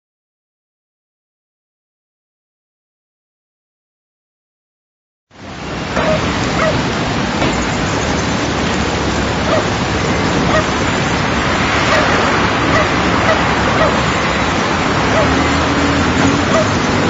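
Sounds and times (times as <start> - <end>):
dense outdoor garden noise: 5.3 - 17.0
short calls: 6.0 - 6.9, 9.2 - 17.0.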